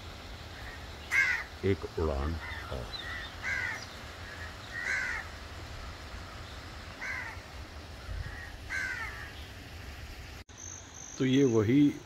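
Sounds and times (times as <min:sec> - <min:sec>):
low steady rumble: 0:00.0 - 0:10.9
crow cawing: 0:00.6 - 0:01.6, 0:02.4 - 0:09.4.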